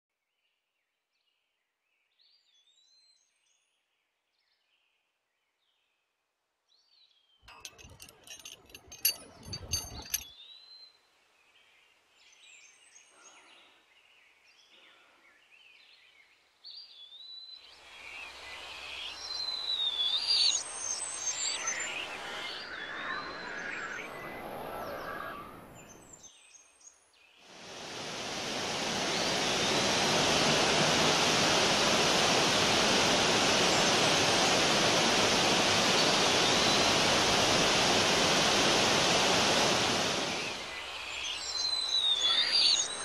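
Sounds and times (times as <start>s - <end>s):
broad hiss: 27.5s - 41.4s
birds singing whistled phrases: 40.3s - 43.0s.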